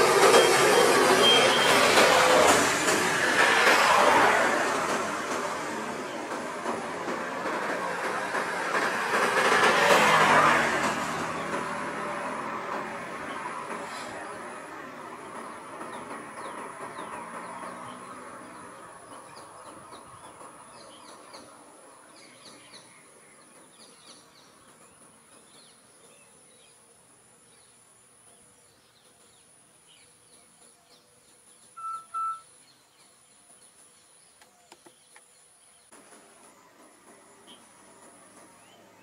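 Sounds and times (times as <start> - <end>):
birds chirping: 0.0 - 2.9, 11.0 - 39.0.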